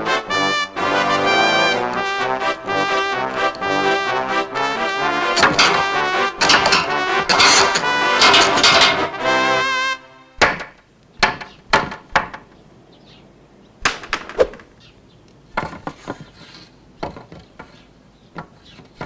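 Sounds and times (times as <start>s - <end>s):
wooden knocks and clunks: 5.4s - 9.3s, 10.4s - 12.6s, 13.8s - 14.7s, 15.5s - 19.0s.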